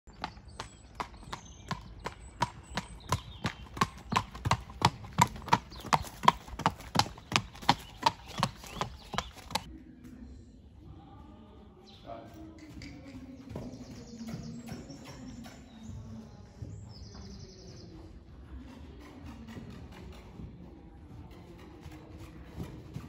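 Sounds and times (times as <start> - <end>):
horse hooves on gravel: 0.1 - 9.7, 12.3 - 23.0.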